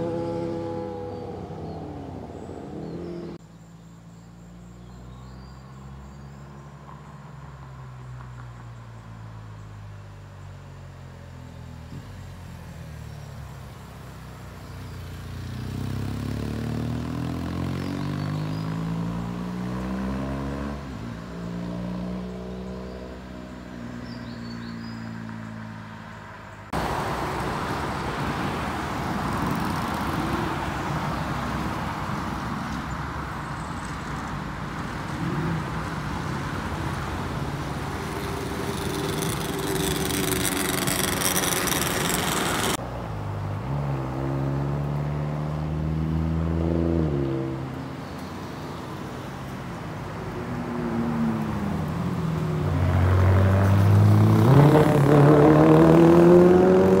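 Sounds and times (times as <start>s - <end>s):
traffic passing: 0.0s - 57.0s
sportbike engine: 36.8s - 42.8s.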